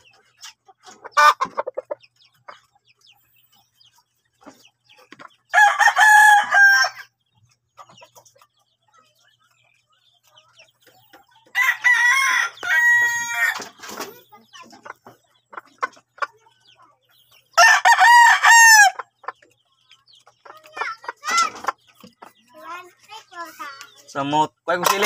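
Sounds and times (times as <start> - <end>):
rooster crowing: 17.6 - 19.0.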